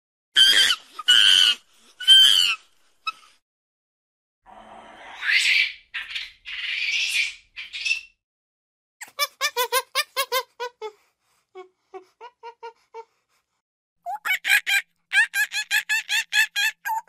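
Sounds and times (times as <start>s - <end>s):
monkey screeching: 0.4s - 3.2s, 5.2s - 8.1s, 14.1s - 17.0s.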